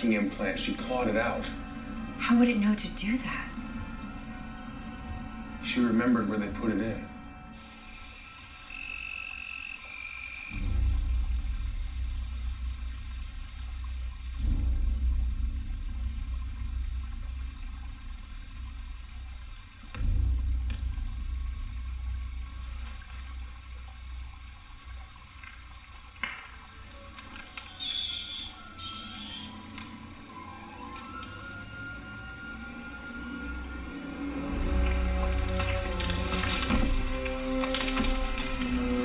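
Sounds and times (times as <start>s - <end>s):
deep bass rumbles: 10.5s - 25.3s.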